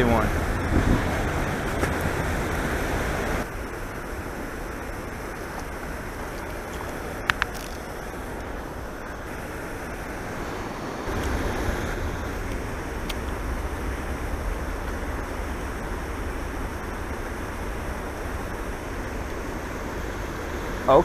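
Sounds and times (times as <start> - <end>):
wind buffeting microphone: 0.0 - 21.0
water pouring into river: 0.4 - 9.4.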